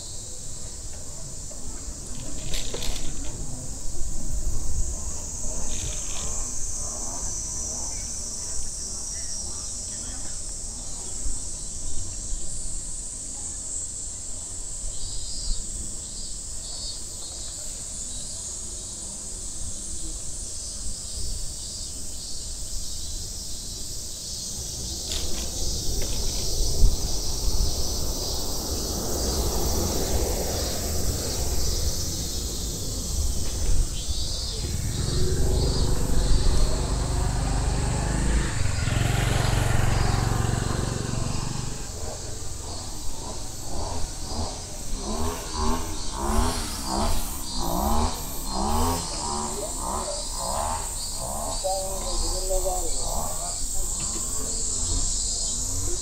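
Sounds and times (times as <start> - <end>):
cicadas droning: 0.0 - 56.0
low rumble: 30.7 - 42.7.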